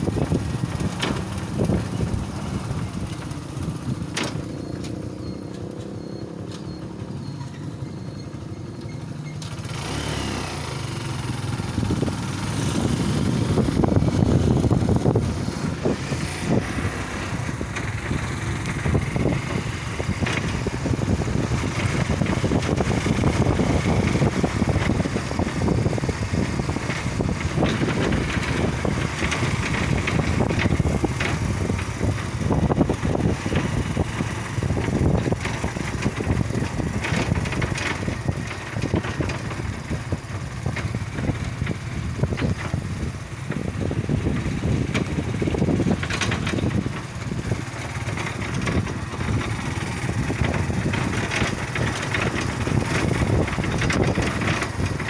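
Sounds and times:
motorcycle engine rumble: 0:00.0 - 0:55.0.

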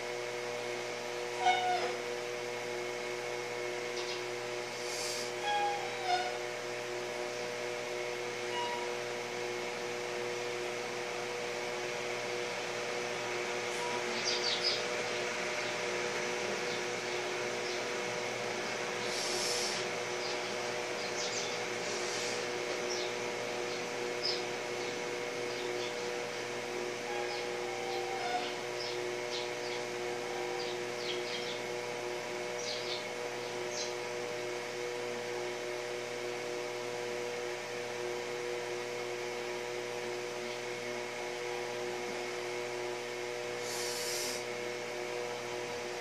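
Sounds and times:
machine hum with held tones: 0:00.0 - 0:46.0
hiss: 0:04.8 - 0:05.4, 0:19.0 - 0:19.9, 0:21.8 - 0:22.4, 0:43.5 - 0:44.5.

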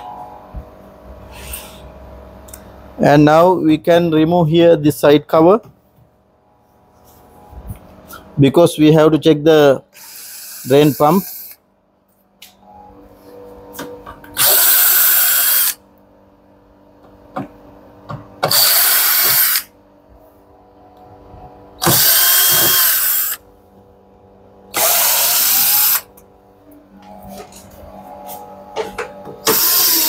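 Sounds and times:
power drill bursts: 0:14.4 - 0:15.8, 0:18.4 - 0:19.7, 0:21.8 - 0:23.4, 0:24.8 - 0:26.1, 0:29.4 - 0:30.0.

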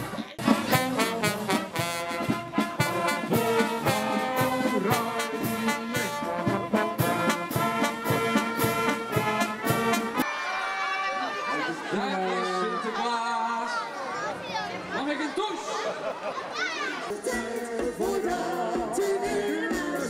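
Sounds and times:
upbeat brass music: 0:00.0 - 0:10.3, 0:17.1 - 0:20.0.

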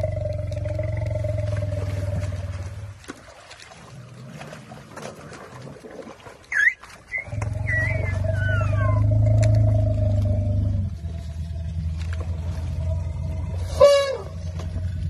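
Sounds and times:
elephant low rumble: 0:00.0 - 0:03.1, 0:07.1 - 0:15.0
elephant squeaks sliding down: 0:06.5 - 0:09.1
elephant squealing: 0:06.5 - 0:09.1.

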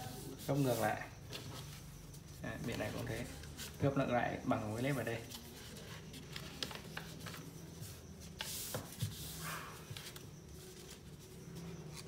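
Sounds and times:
paper rustling and rubbing: 0:00.0 - 0:03.9, 0:04.6 - 0:12.0
paper crinkles: 0:05.2 - 0:07.5.

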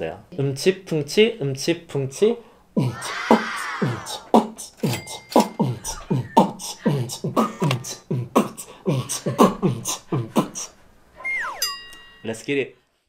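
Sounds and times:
man beatboxing: 0:02.8 - 0:10.8.

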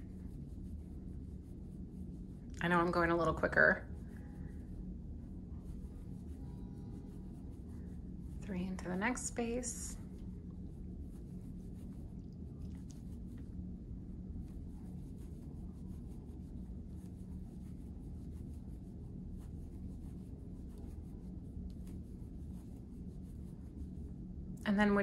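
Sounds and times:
yarn rustling through stitches: 0:00.0 - 0:13.5
steady low hum: 0:00.0 - 0:25.0.

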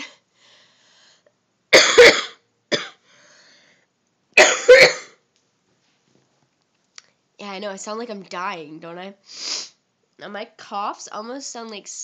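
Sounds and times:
girl coughing: 0:01.7 - 0:03.0, 0:04.4 - 0:05.2.

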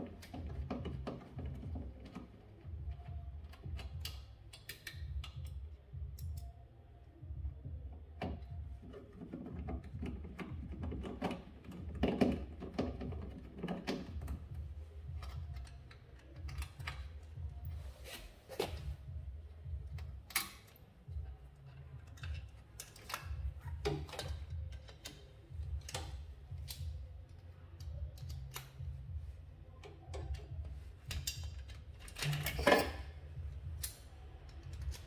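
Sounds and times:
hand tool tapping on wiring: 0:08.2 - 0:17.8.

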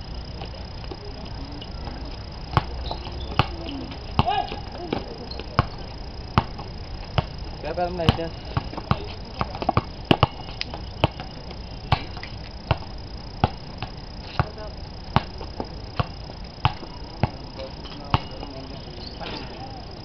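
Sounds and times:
basketball bouncing on concrete: 0:02.5 - 0:18.4.

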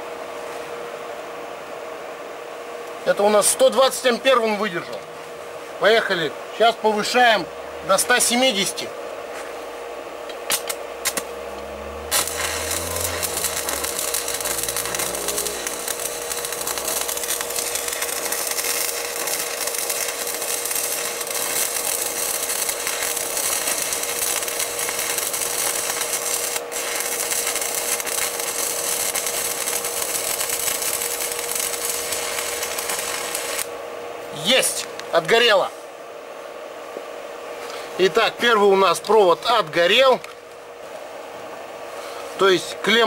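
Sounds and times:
welding arc crackling and hissing: 0:10.2 - 0:35.6
steady tone: 0:10.9 - 0:18.3.

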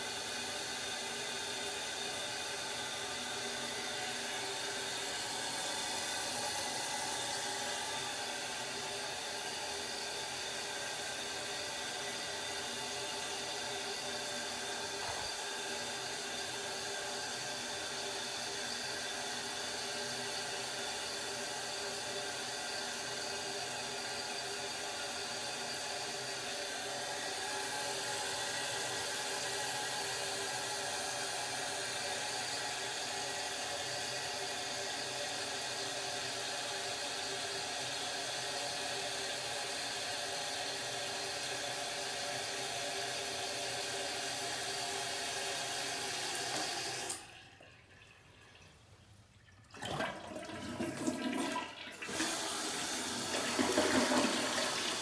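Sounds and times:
toilet tank refilling hiss: 0:00.0 - 0:48.4, 0:49.7 - 0:55.0.

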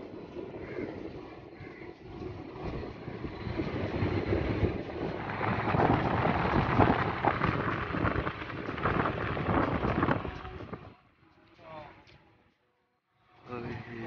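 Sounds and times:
wind buffeting microphone: 0:00.0 - 0:11.0
road rumble: 0:00.0 - 0:12.2.

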